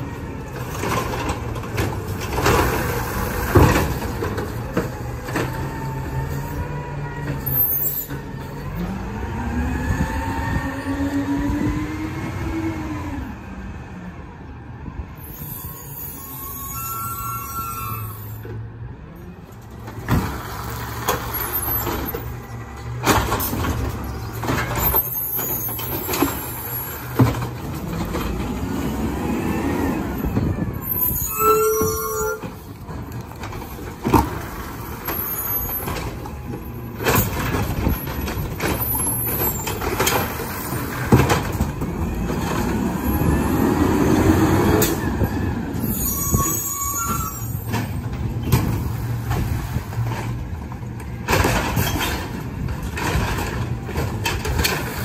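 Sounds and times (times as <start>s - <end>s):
garbage truck engine: 0.0s - 55.0s
air brakes hissing and squealing: 6.2s - 8.6s, 15.2s - 18.6s, 23.1s - 27.6s, 28.8s - 32.8s, 33.4s - 41.6s, 42.6s - 50.3s.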